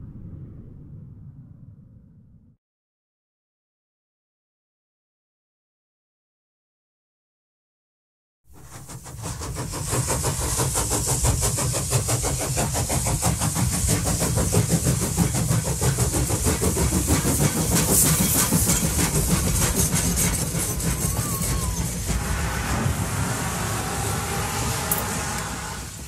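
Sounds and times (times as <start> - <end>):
steam locomotive chugging: 8.5 - 26.0.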